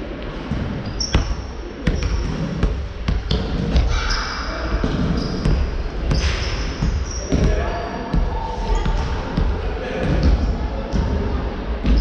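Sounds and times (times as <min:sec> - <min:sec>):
sneakers squeaking on floor: 0:00.4 - 0:11.2
basketball bouncing on wooden floor: 0:00.9 - 0:04.0, 0:04.8 - 0:11.1.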